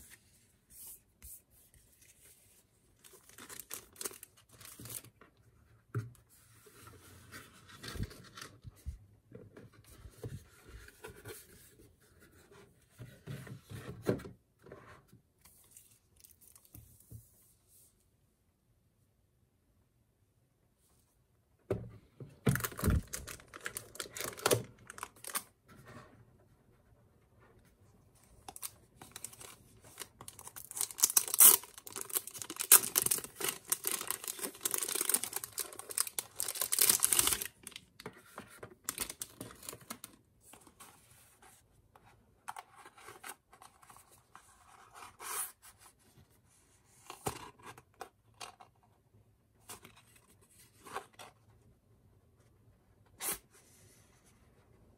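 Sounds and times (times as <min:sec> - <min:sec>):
plastic wrapping crinkling and tearing: 0:03.0 - 0:05.0, 0:22.5 - 0:25.5, 0:28.5 - 0:37.9
cardboard and paper handling: 0:28.5 - 0:41.6.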